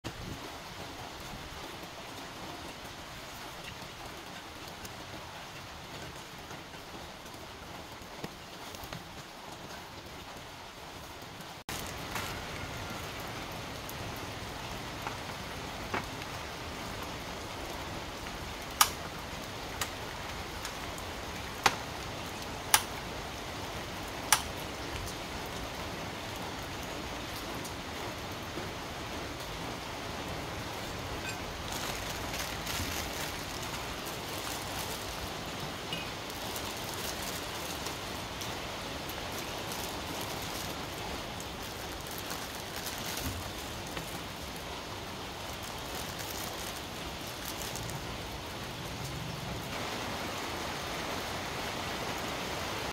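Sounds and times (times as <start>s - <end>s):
plastic packets being torn open: 31.6s - 35.3s, 36.2s - 38.1s, 39.2s - 44.3s, 45.5s - 47.9s.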